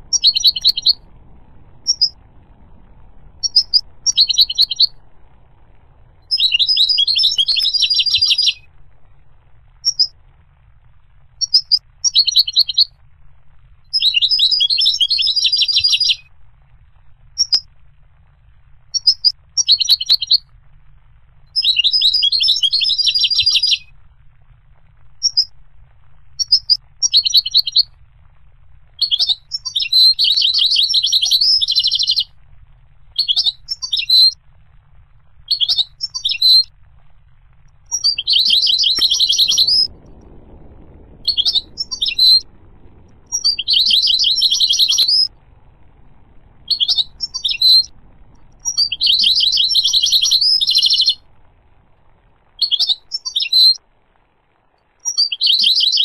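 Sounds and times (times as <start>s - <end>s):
goldfinch singing: 0.0s - 1.0s, 1.8s - 2.2s, 3.4s - 5.0s, 6.3s - 8.7s, 9.8s - 10.1s, 11.4s - 12.9s, 13.9s - 16.2s, 17.4s - 17.6s, 18.9s - 20.4s, 21.6s - 23.9s, 25.2s - 25.5s, 26.4s - 27.8s, 29.0s - 32.3s, 33.2s - 34.4s, 35.5s - 36.7s, 37.9s - 39.9s, 41.3s - 42.4s, 43.3s - 45.3s, 46.7s - 47.9s, 48.6s - 51.2s, 52.6s - 53.8s, 55.0s - 56.0s.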